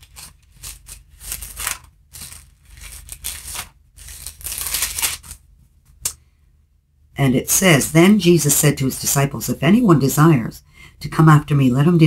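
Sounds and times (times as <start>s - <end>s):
book pages rustling: 0.0s - 6.0s.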